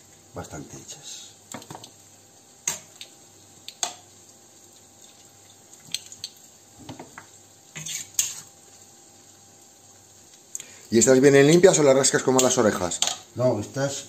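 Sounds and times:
dripping: 4.6 - 6.8.

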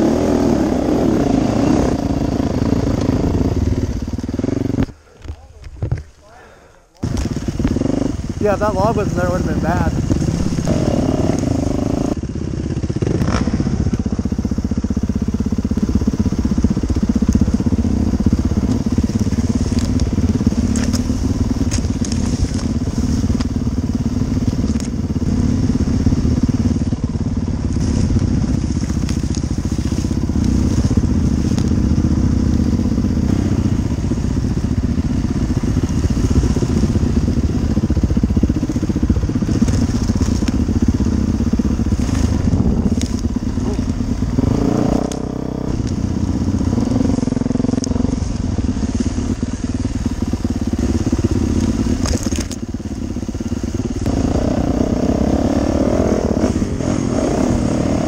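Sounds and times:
dirt bike engine running: 0.0 - 58.0
brush snapping against bike: 2.9 - 3.3, 4.1 - 6.3, 7.0 - 8.1, 10.0 - 12.0, 13.1 - 14.1, 16.8 - 17.6, 18.4 - 25.2, 27.6 - 32.2, 35.6 - 49.4, 50.7 - 57.8.

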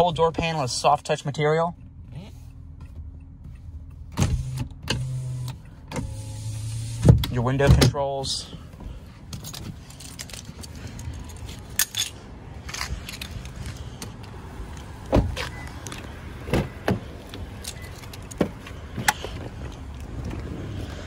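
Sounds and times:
keys jangling: 9.3 - 13.9
car door clicks and knocks: 16.4 - 17.1.

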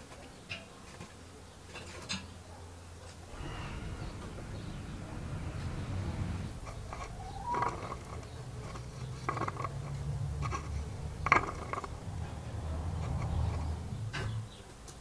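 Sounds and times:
steady low rumble: 3.3 - 14.6.

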